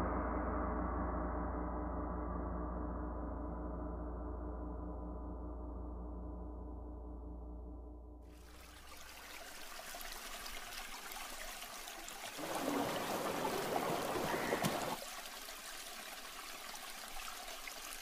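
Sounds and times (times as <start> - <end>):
stream water trickling: 8.3 - 18.0.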